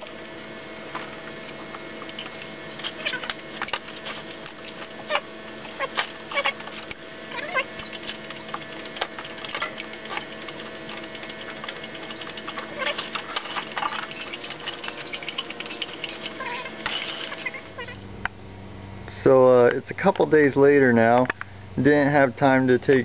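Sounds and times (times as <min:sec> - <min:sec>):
short squeaks: 0:02.2 - 0:18.0
tools and metal parts clinking: 0:05.6 - 0:17.9.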